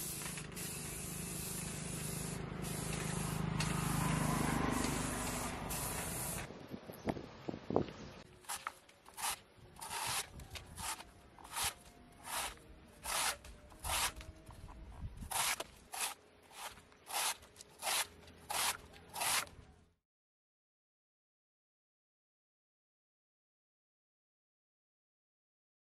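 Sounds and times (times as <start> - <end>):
knife slicing wooden pole: 8.4 - 14.3, 15.3 - 19.6.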